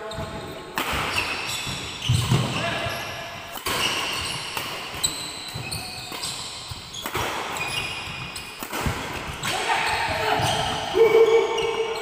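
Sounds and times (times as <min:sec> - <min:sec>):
shoes squeaking on wooden floor: 0:00.0 - 0:12.0
racket striking shuttlecock: 0:00.8 - 0:02.5, 0:03.5 - 0:09.7.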